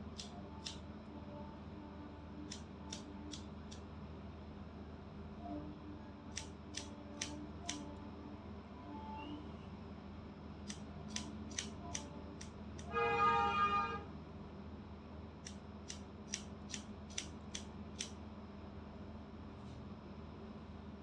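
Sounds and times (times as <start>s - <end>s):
scissors snipping hair: 0.1s - 0.8s, 2.5s - 3.8s, 6.3s - 7.9s, 10.6s - 12.9s, 15.4s - 18.2s.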